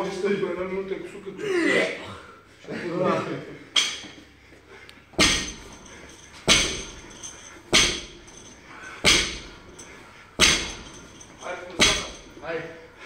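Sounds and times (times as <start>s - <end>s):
barbell thudding on rubber floor: 5.2s - 5.8s, 6.4s - 7.1s, 7.7s - 8.4s, 9.0s - 9.6s, 10.4s - 11.0s, 11.7s - 12.4s.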